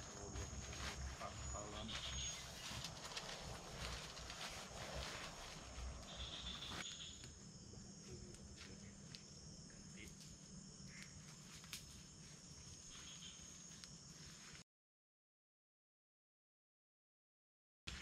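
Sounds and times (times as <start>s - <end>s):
night insects calling: 0.0s - 14.6s
faint clicks and snaps: 11.0s - 11.9s.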